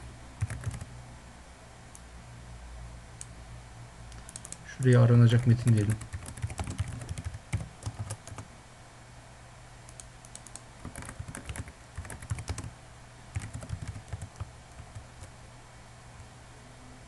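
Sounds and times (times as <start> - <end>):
faint low hum: 0.0 - 17.0
computer keyboard typing: 0.4 - 0.9, 4.2 - 8.5, 9.9 - 12.7, 13.3 - 15.3.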